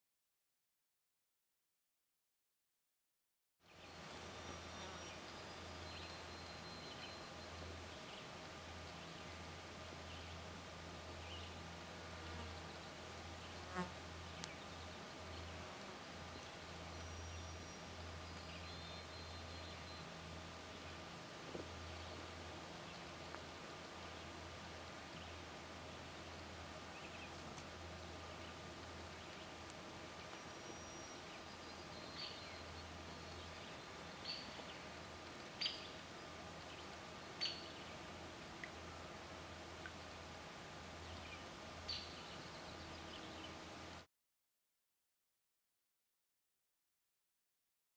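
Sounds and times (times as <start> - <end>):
faint background hiss: 3.7 - 44.0.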